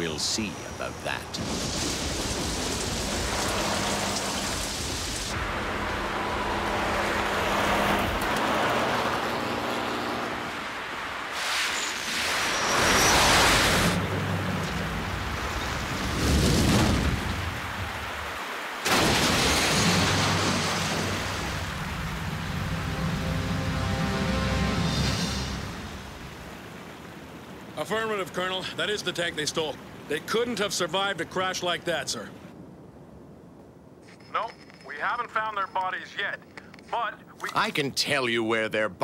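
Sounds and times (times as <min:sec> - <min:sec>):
heavy rain: 0:00.0 - 0:31.9
loud crash: 0:18.8 - 0:21.7.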